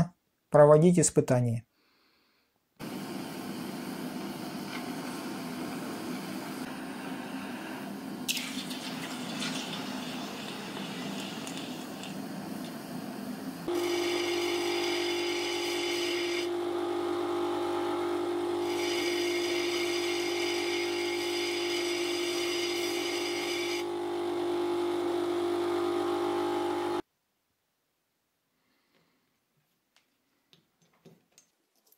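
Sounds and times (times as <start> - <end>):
bench grinder humming: 13.6 - 27.0
steel grinding rasp: 13.7 - 16.5, 18.5 - 23.9.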